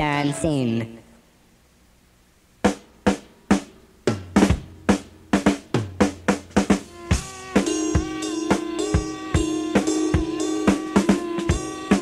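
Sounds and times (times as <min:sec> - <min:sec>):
drum kit playing: 0:02.6 - 0:12.0.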